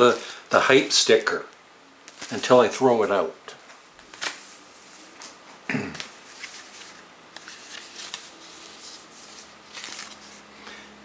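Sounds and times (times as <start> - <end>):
plastic package rustling and clicking: 2.1 - 2.4, 6.0 - 10.4.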